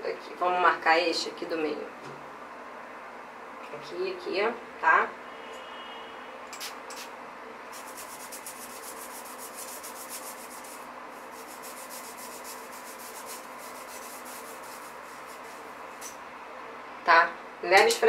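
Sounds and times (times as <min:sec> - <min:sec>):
toothbrush scrubbing tile grout: 0:07.7 - 0:16.2.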